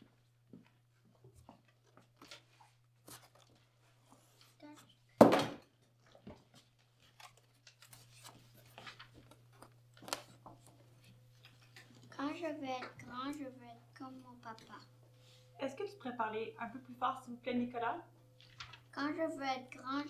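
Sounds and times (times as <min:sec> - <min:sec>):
faint low hum: 0:00.0 - 0:20.0
paper rustling: 0:01.8 - 0:04.9, 0:06.0 - 0:12.2, 0:18.4 - 0:18.9.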